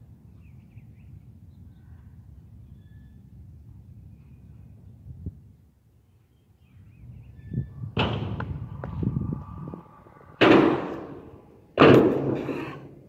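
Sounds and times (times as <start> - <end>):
scooter slamming down: 8.0 - 8.8, 10.4 - 12.7.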